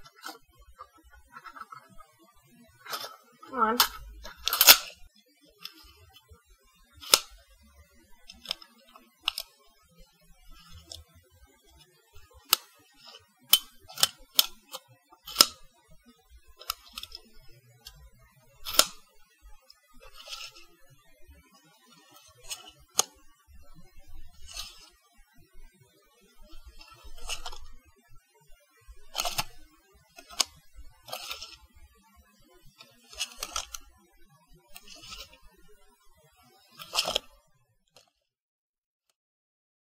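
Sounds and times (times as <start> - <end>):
tape measure clicking: 2.9 - 5.0, 7.0 - 7.3, 9.3 - 9.5, 15.3 - 15.6, 18.6 - 19.0, 20.0 - 20.6, 24.4 - 24.9, 26.8 - 27.7, 29.1 - 29.5, 31.1 - 31.6, 33.1 - 33.8, 34.8 - 35.4, 36.8 - 37.2
tape measure rattling: 20.0 - 20.6, 26.8 - 27.7, 29.1 - 29.5, 31.1 - 31.6, 34.8 - 35.3, 36.8 - 37.2.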